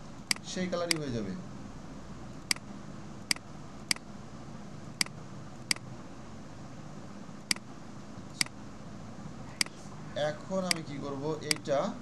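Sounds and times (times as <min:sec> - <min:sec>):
background hiss and hum: 0:00.0 - 0:12.0
computer mouse clicking: 0:00.3 - 0:01.1, 0:02.4 - 0:02.7, 0:05.0 - 0:05.8, 0:07.5 - 0:07.7, 0:10.7 - 0:10.9, 0:11.5 - 0:11.7.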